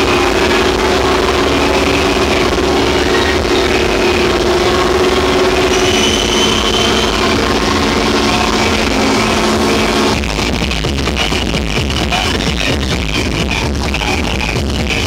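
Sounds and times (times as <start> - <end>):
held synth chord: 0.0 - 10.4
loud electronic dance music: 0.0 - 15.0
thumping beat: 0.0 - 15.0.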